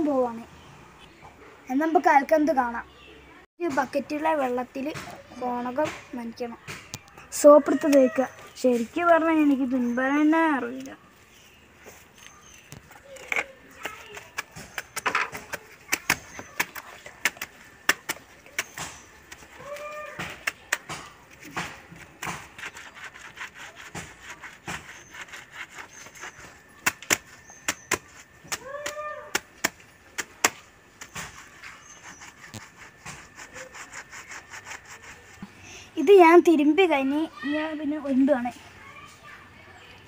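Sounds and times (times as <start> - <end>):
cloth scrubbing on stone: 11.9 - 29.5, 31.0 - 35.4
animal call: 28.5 - 29.4.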